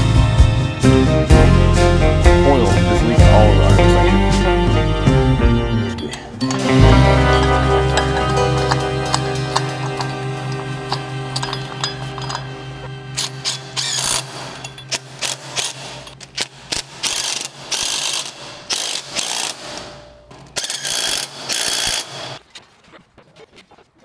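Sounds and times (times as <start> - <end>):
cordless driver running lug nuts: 7.3 - 19.8.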